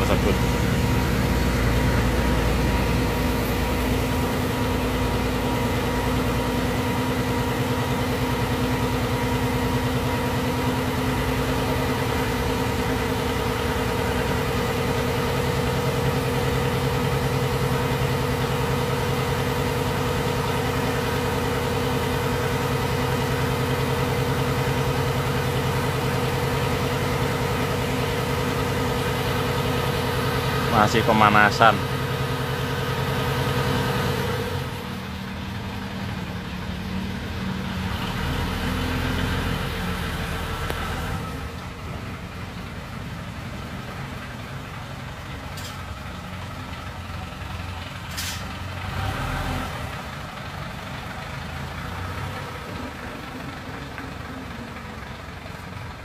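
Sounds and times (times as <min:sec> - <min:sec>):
diesel truck engine idling: 0:00.0 - 0:56.0.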